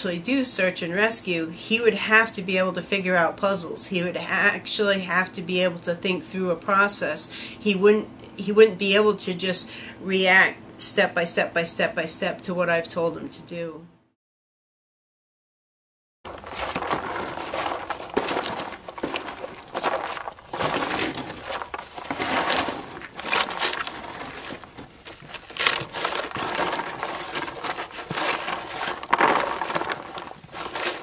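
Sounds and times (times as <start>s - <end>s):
horse grazing and chewing: 16.3s - 31.0s.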